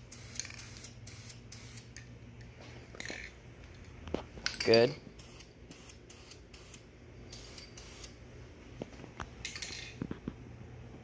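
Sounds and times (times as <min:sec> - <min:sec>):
spray can hissing: 0:00.0 - 0:01.9, 0:05.2 - 0:08.2.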